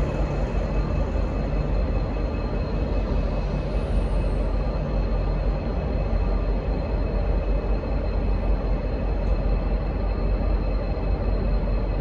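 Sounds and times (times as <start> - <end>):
diesel locomotive engines rumbling: 0.0 - 12.0.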